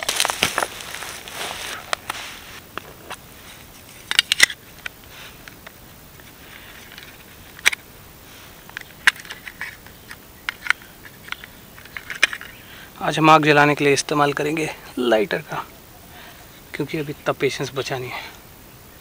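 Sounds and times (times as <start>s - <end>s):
light plastic rustling: 0.0s - 7.8s.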